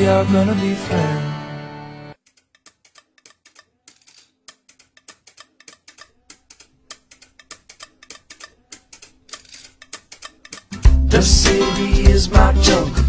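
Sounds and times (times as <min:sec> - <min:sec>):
soft ticking clicks: 0:02.2 - 0:10.8.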